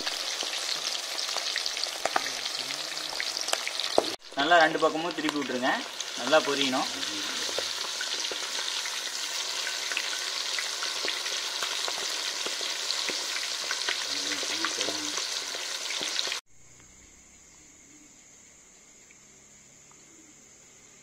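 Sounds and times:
food deep-frying in oil: 0.0s - 16.4s.

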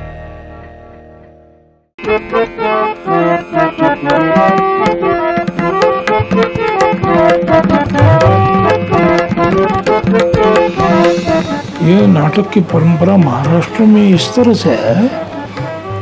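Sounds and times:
harmonium melody: 2.0s - 16.0s
quick drum strokes: 6.1s - 13.7s.

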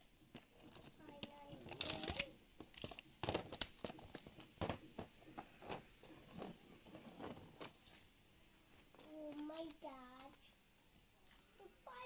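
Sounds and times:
plastic toys clicking on tabletop: 0.3s - 6.1s, 9.0s - 10.5s.

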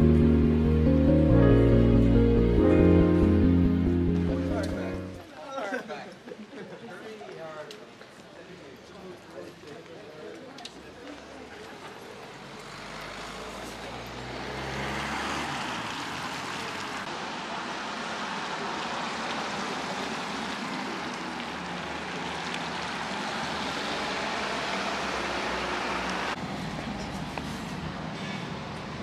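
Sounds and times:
passing vehicles hissing: 12.3s - 29.0s.

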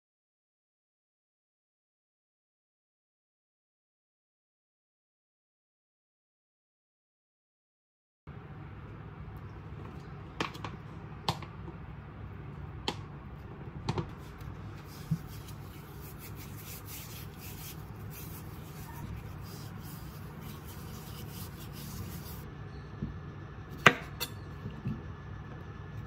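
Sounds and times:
low room hum: 8.3s - 26.0s
soft rubbing and rustling: 14.1s - 22.5s.

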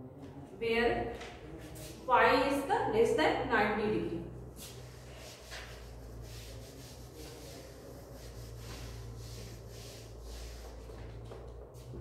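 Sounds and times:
steady low hum: 0.0s - 12.0s
duster wiping chalkboard: 4.5s - 12.0s.

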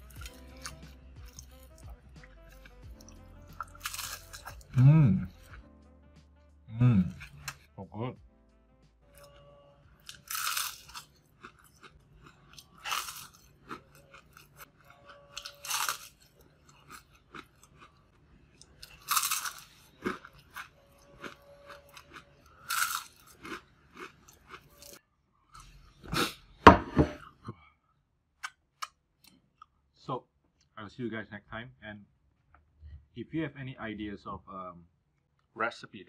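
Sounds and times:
fried fish skin crunching: 0.0s - 4.8s, 10.0s - 18.0s, 18.6s - 25.0s
quiet chewing: 0.0s - 5.6s, 7.0s - 7.7s, 10.0s - 26.4s
mouth noise: 4.6s - 5.5s, 6.7s - 7.5s.

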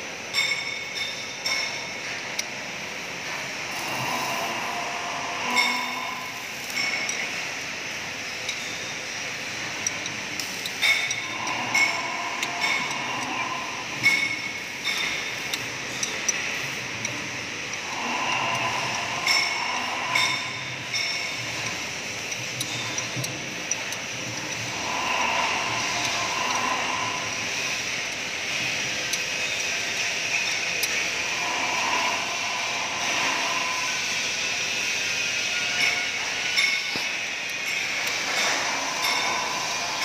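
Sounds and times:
steady background noise: 0.0s - 40.0s
metal tools clinking on metal: 0.3s - 2.2s, 9.8s - 16.4s, 17.9s - 21.8s, 35.6s - 40.0s
sharp metallic clicks: 0.3s - 2.6s, 3.2s - 40.0s.

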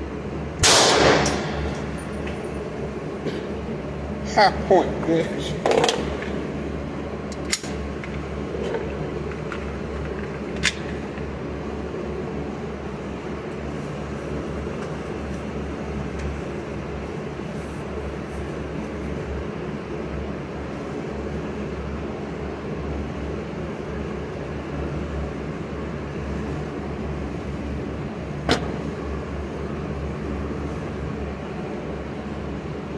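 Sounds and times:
ventilation hum: 0.0s - 32.9s
sharp crack: 0.6s - 1.7s.

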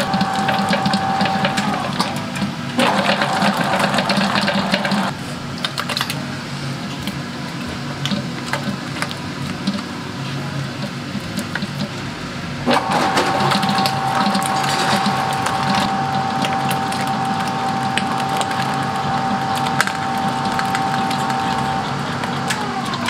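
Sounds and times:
gears and beater clattering: 0.0s - 23.0s
stand mixer motor hum: 0.0s - 23.0s.

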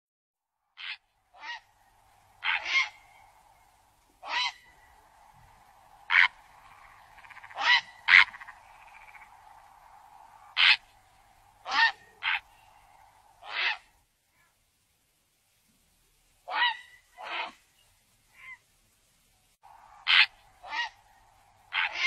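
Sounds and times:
faint steady drone: 0.4s - 16.4s, 18.8s - 22.0s
heron croaking squawks: 0.8s - 13.9s, 19.8s - 22.0s.

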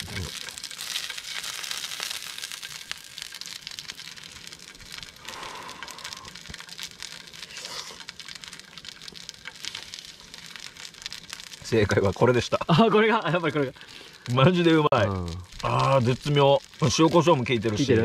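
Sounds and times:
oil crackling in frying pan: 0.0s - 18.0s.

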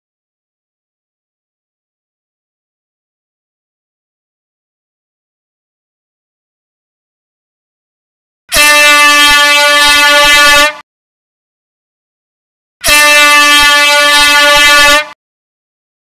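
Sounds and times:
air horn blasts: 8.5s - 10.8s, 12.8s - 15.2s.

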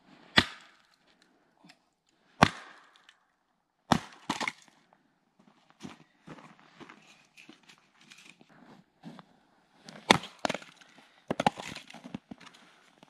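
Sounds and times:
hatchet striking wood: 0.4s - 0.8s, 2.4s - 3.1s, 3.9s - 4.6s, 10.1s - 11.8s
wood splitting cracks: 3.9s - 4.7s, 10.0s - 12.5s.

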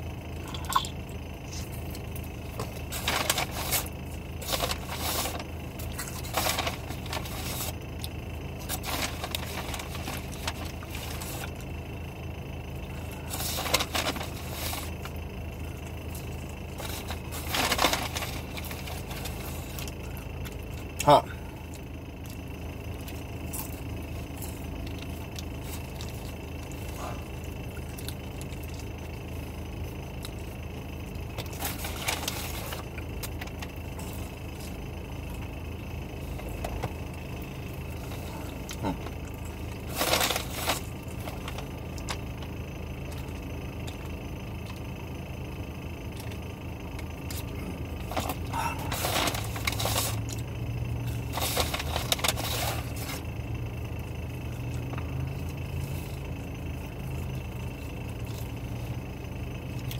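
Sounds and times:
low hum inside car: 0.0s - 59.9s
paper bag crinkling: 2.6s - 7.8s, 8.6s - 11.6s, 13.0s - 15.0s, 16.1s - 19.9s, 31.5s - 32.9s, 39.7s - 42.2s, 48.0s - 50.2s, 51.2s - 53.2s.

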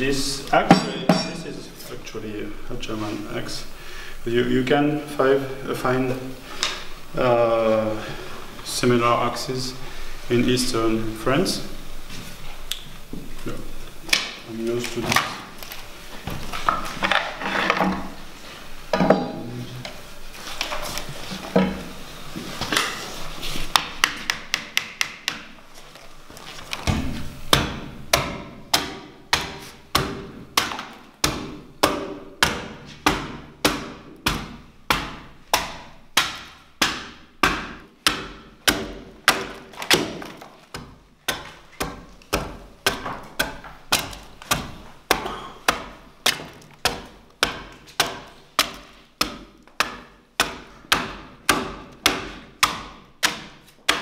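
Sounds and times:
axe chopping timber: 26.8s - 54.0s.

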